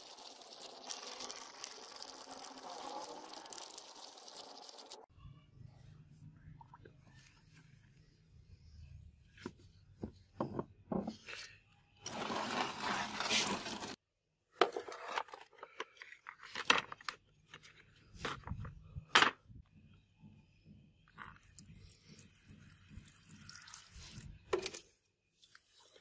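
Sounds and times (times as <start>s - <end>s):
liquid splashing and running off: 0.0s - 5.0s.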